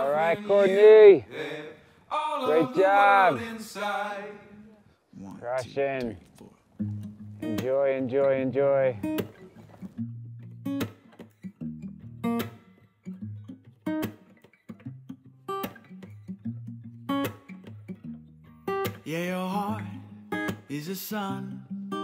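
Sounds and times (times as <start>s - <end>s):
strummed acoustic guitar: 6.8s - 22.0s.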